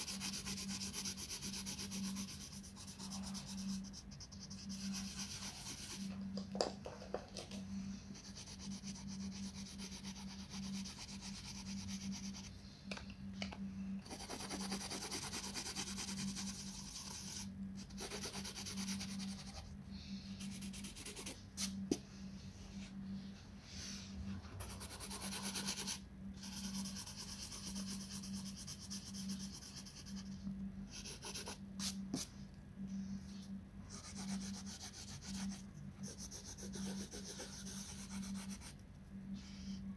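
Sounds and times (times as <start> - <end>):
pencil scratching on paper: 0.0 - 6.1, 8.2 - 12.5, 14.1 - 19.7, 24.6 - 30.4, 31.0 - 32.3, 33.9 - 38.7
low hum: 2.1 - 14.9.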